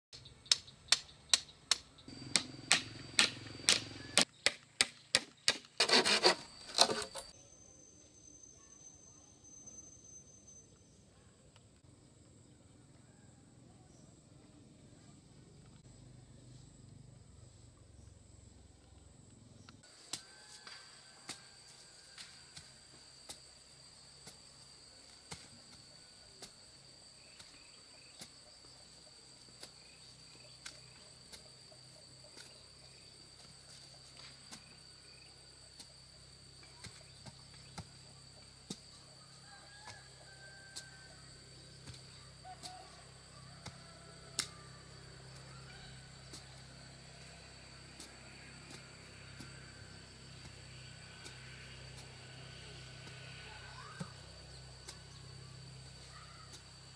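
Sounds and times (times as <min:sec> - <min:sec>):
digging tool chopping hard ground: 0:02.1 - 0:07.3.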